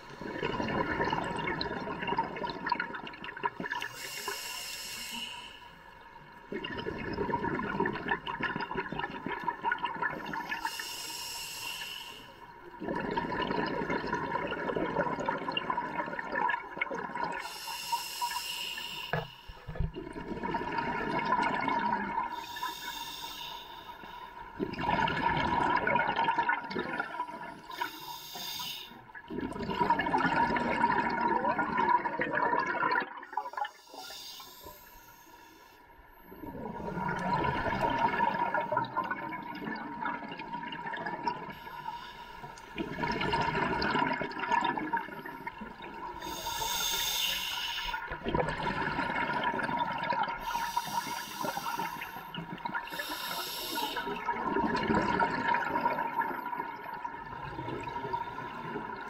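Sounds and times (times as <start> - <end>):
exhaled bubbles rumbling: 0.0 - 3.9, 6.3 - 10.6, 12.7 - 17.4, 19.6 - 22.4, 24.5 - 27.7, 29.2 - 33.7, 36.3 - 41.7, 42.6 - 46.5, 47.9 - 53.0, 54.0 - 59.0
hissing regulator inhalations: 3.9 - 5.8, 10.2 - 12.4, 17.4 - 19.7, 22.3 - 24.5, 27.6 - 29.1, 33.5 - 35.9, 41.5 - 42.8, 46.1 - 48.1, 50.4 - 54.2.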